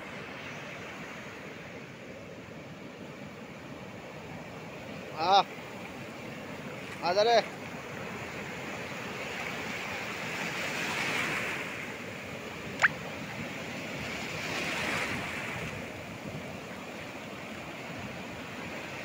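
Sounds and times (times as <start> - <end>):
ocean surf breaking: 3.4 - 19.0
brief sharp click: 12.8 - 13.0.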